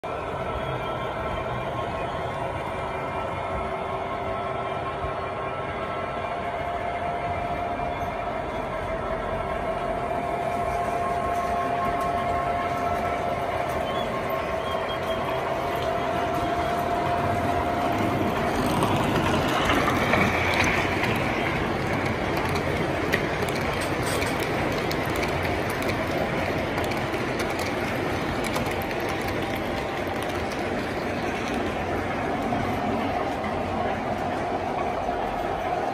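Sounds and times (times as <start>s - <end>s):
model train wheels rumbling and clicking: 11.4s - 35.9s.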